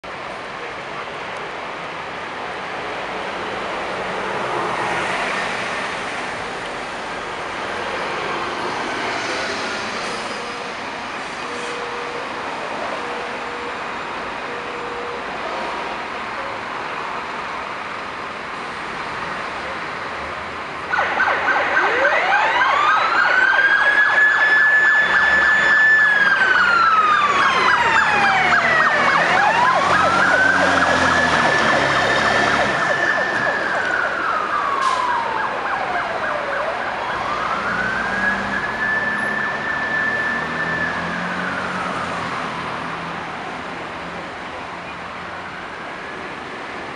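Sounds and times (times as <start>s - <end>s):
traffic noise: 0.0s - 46.9s
fire engine siren wailing: 20.9s - 43.7s.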